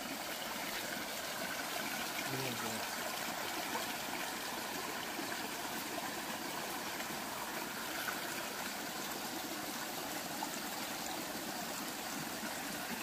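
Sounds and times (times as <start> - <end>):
stream water flowing: 0.0 - 13.0.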